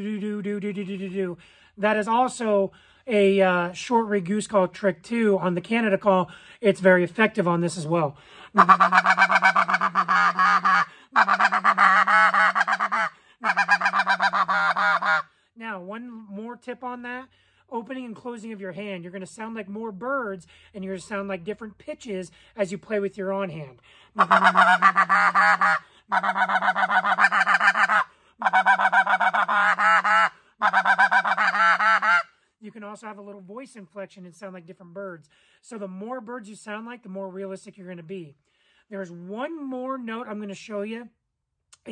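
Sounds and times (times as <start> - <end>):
goose call stuttering notes: 8.6 - 15.3, 24.2 - 32.3.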